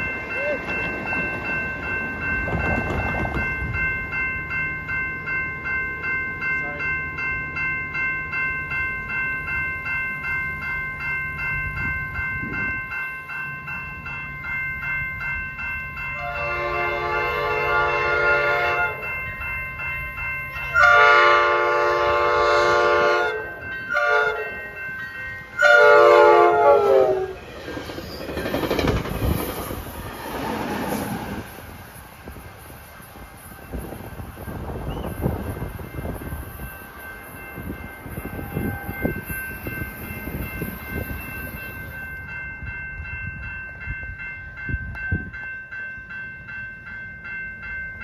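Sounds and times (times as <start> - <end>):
railroad crossing bell ringing: 0.0 - 48.0
train rumbling past: 0.0 - 48.0
train horn blasts: 16.2 - 19.0, 20.7 - 24.6, 25.6 - 27.4, 38.2 - 39.3.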